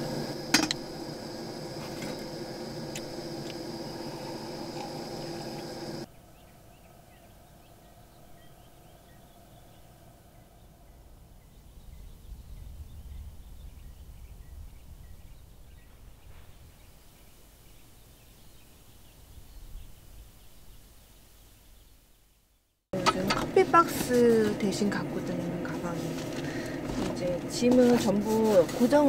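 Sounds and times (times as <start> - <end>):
faint steady hum: 0.0 - 13.6, 23.0 - 29.0
wind rumble on microphone: 10.5 - 21.0.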